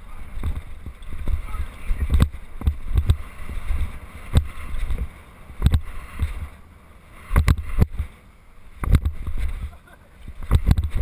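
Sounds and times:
bike tyre rumble: 0:00.0 - 0:11.0
wind buffeting microphone: 0:00.0 - 0:11.0
bike knocks: 0:08.8 - 0:09.5.

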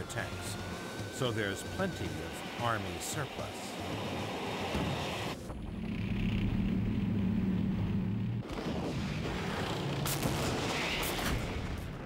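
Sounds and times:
tank engine running: 0:00.0 - 0:12.0
tank gun firing: 0:08.4 - 0:12.0.

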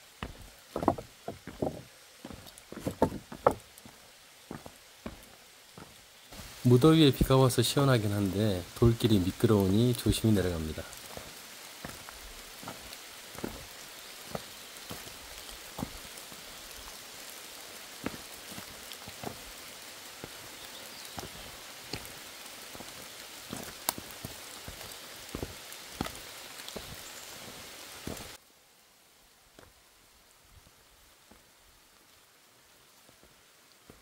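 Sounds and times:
rain drops tapping and knocking: 0:00.0 - 0:28.5, 0:29.5 - 0:29.8, 0:30.4 - 0:34.0
heavy rain hissing: 0:00.0 - 0:34.0.

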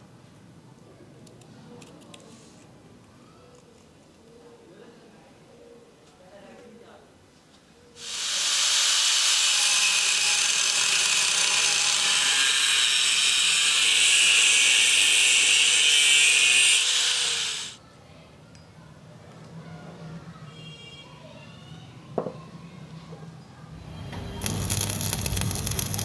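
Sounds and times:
angle grinder grinding steel: 0:08.0 - 0:17.8, 0:24.1 - 0:26.0.

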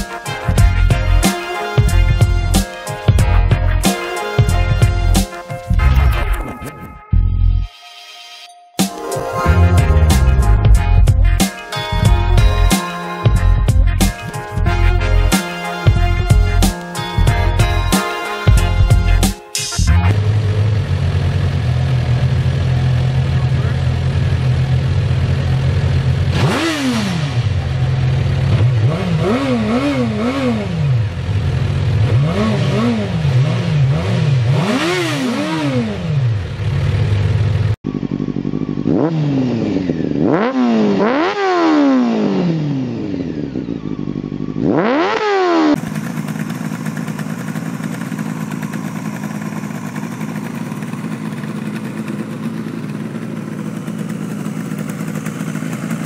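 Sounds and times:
two-stroke engine running steadily: 0:00.0 - 0:05.6, 0:20.0 - 0:56.0
motorcycle engine revving: 0:09.4 - 0:56.0.

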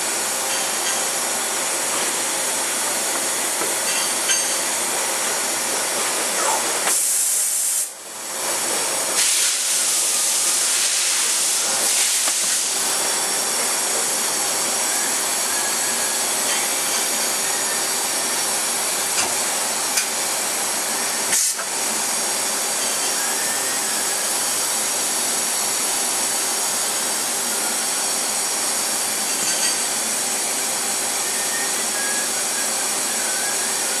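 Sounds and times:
machine steady hiss: 0:00.0 - 0:34.0
loud high hiss: 0:09.2 - 0:13.2.

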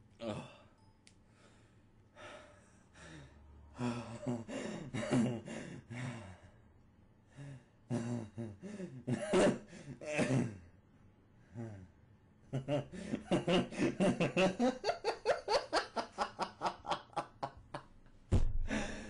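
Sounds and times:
person making wordless vocal sounds: 0:00.2 - 0:00.6.

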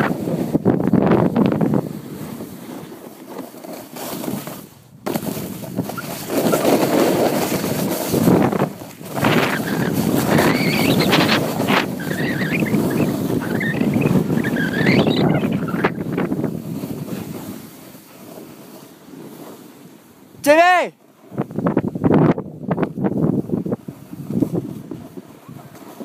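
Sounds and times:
wind noise on microphone: 0:00.0 - 0:03.0, 0:04.0 - 0:19.7, 0:21.2 - 0:26.0
snowboard scraping over snow: 0:00.0 - 0:20.4, 0:21.0 - 0:26.0
wavering high squeak: 0:09.5 - 0:16.0.

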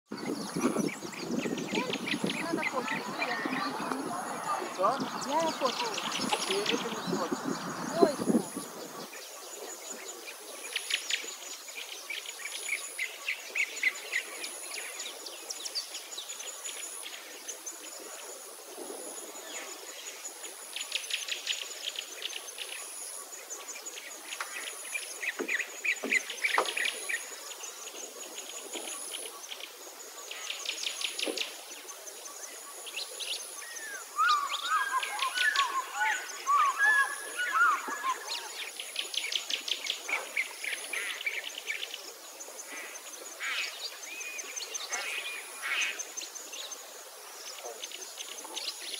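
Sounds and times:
birds trilling: 0:00.1 - 0:09.3, 0:33.6 - 0:38.7
warbling bird calls: 0:00.1 - 0:18.4, 0:19.2 - 0:46.9
high insect chirping: 0:00.1 - 0:48.9.

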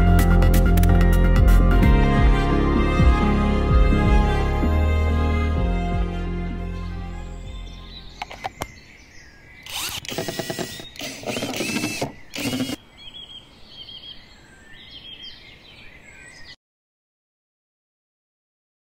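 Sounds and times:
small birds chirping: 0:07.3 - 0:16.6
battery clicking into tool: 0:08.2 - 0:08.8
cordless driver rattling: 0:09.7 - 0:12.8.

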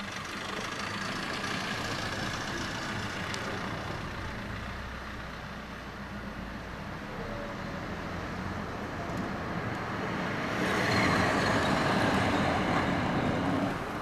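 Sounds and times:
large vehicle engine idling: 0:00.0 - 0:07.2.

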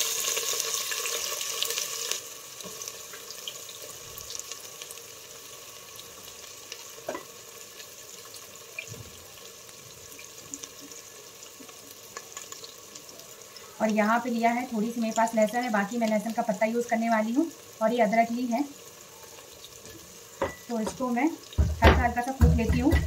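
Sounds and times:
onions sizzling in oil: 0:00.0 - 0:23.0.

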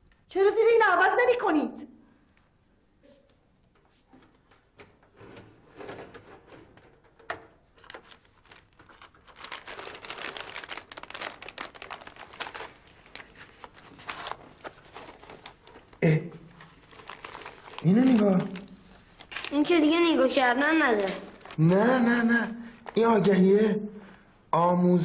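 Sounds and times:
newspaper rustling and crumpling: 0:07.8 - 0:16.0, 0:16.6 - 0:21.6.

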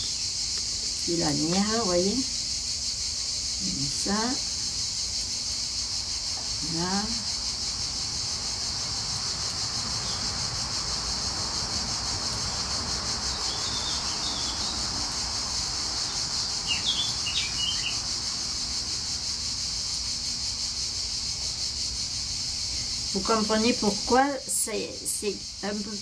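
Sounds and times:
insects chirring: 0:00.0 - 0:26.0
bird chirps: 0:13.5 - 0:14.8, 0:16.6 - 0:18.0.

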